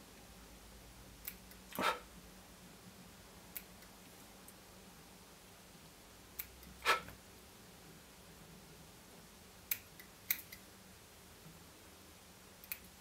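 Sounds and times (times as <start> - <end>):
faint steady hum: 0.0 - 13.0
small scissors clicking: 6.4 - 6.7, 9.7 - 10.6, 12.6 - 12.9.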